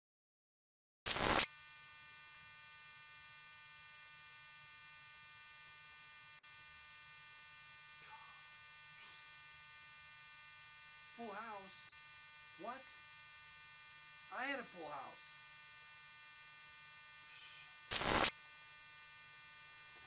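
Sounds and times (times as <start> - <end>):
warbling electronic tones: 1.1 - 1.4, 17.9 - 18.3
electronic hum and buzz: 1.1 - 4.5, 17.9 - 19.8.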